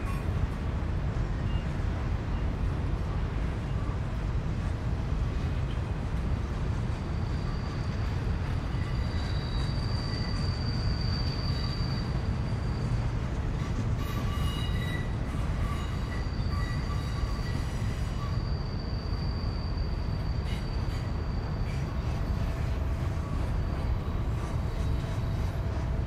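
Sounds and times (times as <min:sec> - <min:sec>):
freight train rumbling: 0:00.0 - 0:26.0
steel wheel flange squeal: 0:07.2 - 0:13.0, 0:13.6 - 0:25.8.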